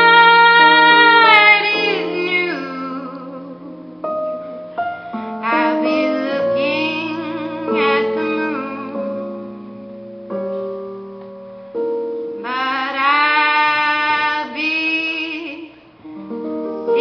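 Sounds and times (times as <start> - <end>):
woman singing: 0.0 - 4.1, 5.4 - 9.2, 12.4 - 15.8
instrumental accompaniment chords: 0.0 - 14.1, 15.9 - 17.0.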